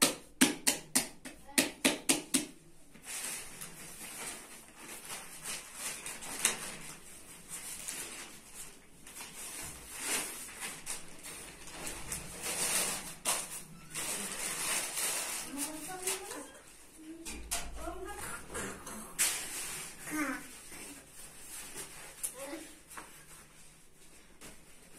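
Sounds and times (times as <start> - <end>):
sheet rustling and swishing: 2.9 - 17.0, 19.2 - 24.9.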